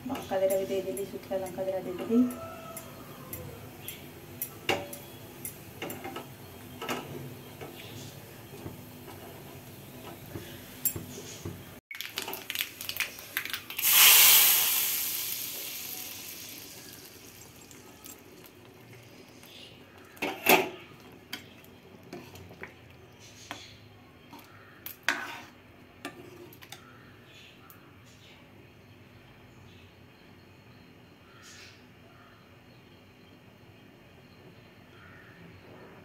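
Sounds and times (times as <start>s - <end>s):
spices crackling in hot oil: 0.0s - 26.8s
loud oil sizzle: 2.7s - 11.2s, 11.9s - 20.6s
metal pan and ladle clanking: 2.8s - 7.8s, 20.1s - 21.5s, 24.3s - 25.5s.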